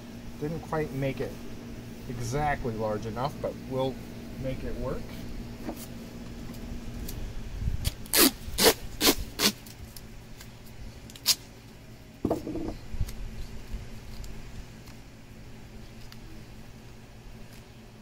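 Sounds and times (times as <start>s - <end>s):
duct tape ripping off roll: 7.8s - 11.5s.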